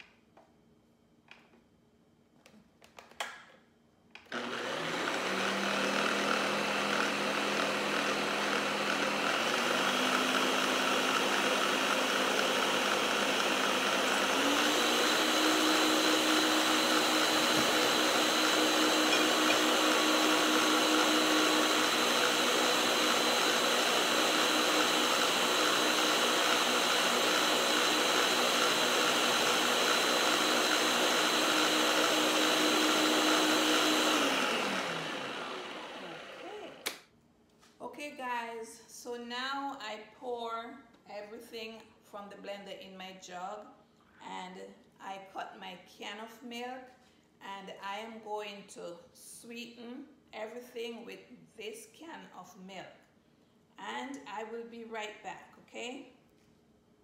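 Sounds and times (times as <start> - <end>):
blender motor running: 4.3 - 37.0.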